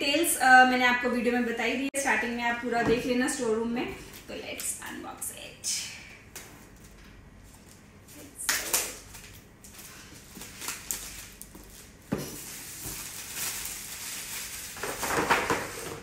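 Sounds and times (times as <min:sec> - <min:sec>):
plastic wrap crinkling: 0:06.6 - 0:16.0.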